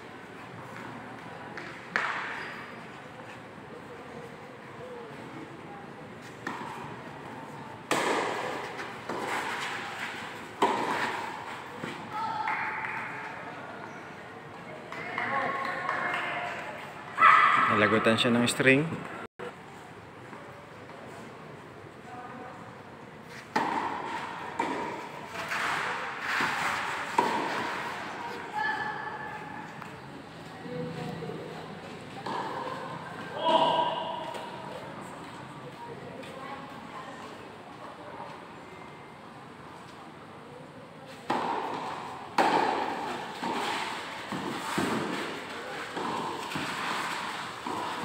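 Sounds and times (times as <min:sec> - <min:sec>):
tennis ball bouncing: 0:07.9 - 0:09.8, 0:10.5 - 0:12.0, 0:23.5 - 0:25.1, 0:41.3 - 0:48.0
racket striking tennis ball: 0:07.9 - 0:12.0, 0:23.5 - 0:28.0, 0:41.3 - 0:48.0.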